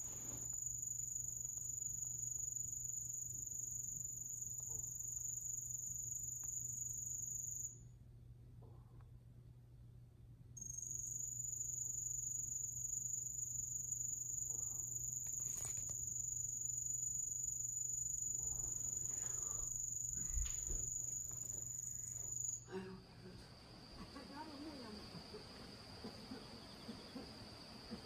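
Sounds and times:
fainter lower insect call: 0.0s - 7.8s, 10.6s - 28.0s
insect loud high trill: 10.6s - 22.8s.

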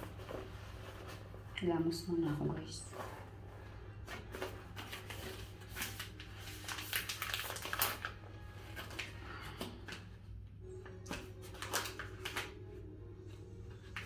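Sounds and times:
plastic packaging crinkling: 2.9s - 10.1s, 11.0s - 12.8s.

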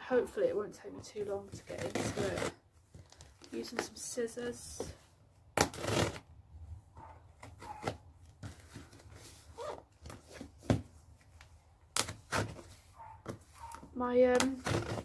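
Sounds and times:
scissors cutting tape and cardboard: 1.5s - 2.6s, 5.6s - 6.3s, 7.4s - 9.0s, 11.9s - 15.0s
tape and box ripping: 1.5s - 3.9s, 5.5s - 6.3s, 7.4s - 10.9s, 11.9s - 15.0s.

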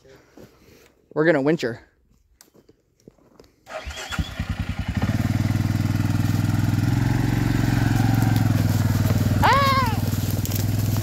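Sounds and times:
quad bike engine starting: 3.7s - 11.0s.

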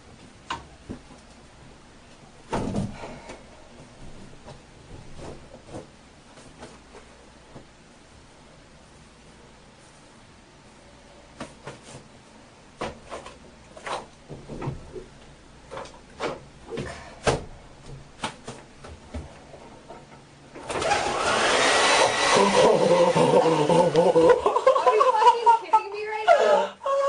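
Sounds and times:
hair dryer running: 20.6s - 24.4s.

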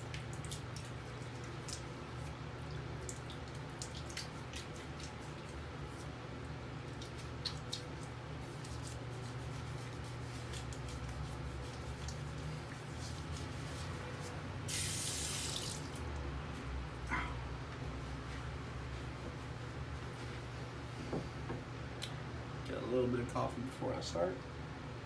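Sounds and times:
water dripping and splashing in sink: 0.0s - 5.6s, 6.9s - 9.0s, 10.3s - 13.4s, 14.7s - 16.2s.

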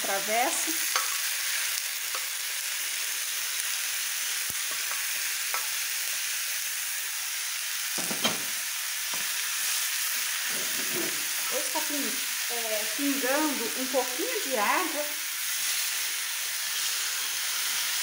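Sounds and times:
chicken sizzling in hot oil: 0.0s - 18.0s
spoon knocking on dish and pan: 8.0s - 8.5s.

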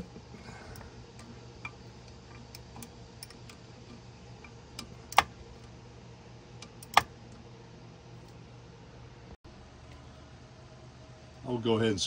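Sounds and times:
sharp metallic click: 6.6s - 7.1s.

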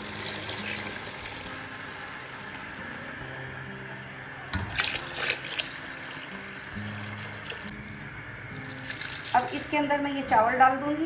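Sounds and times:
water pouring into metal pot: 0.0s - 2.4s, 4.6s - 9.8s.

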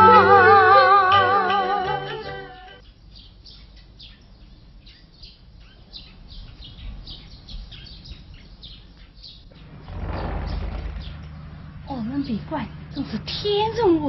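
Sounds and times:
small birds chirping: 2.8s - 14.0s.

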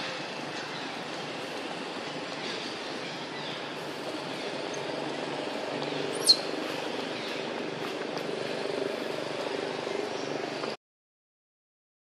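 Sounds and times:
steady low background noise: 0.0s - 10.8s
sharp bird chirp: 6.1s - 6.6s.

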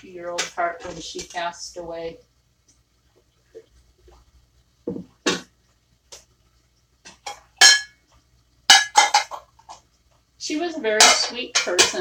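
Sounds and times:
dishes clinking and clattering: 7.1s - 8.0s, 8.7s - 9.8s, 10.9s - 12.0s.

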